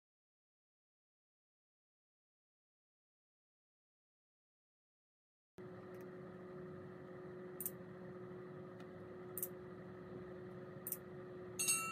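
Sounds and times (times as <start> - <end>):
faint low hum: 5.6 - 11.9.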